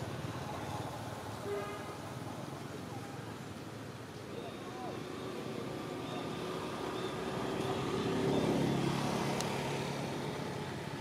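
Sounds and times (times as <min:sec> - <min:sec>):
vehicle engine passing by: 0:05.1 - 0:11.0.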